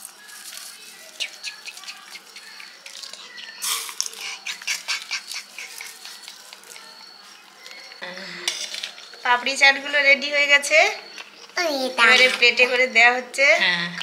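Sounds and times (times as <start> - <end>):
crispy snack crackling: 0.0 - 8.0.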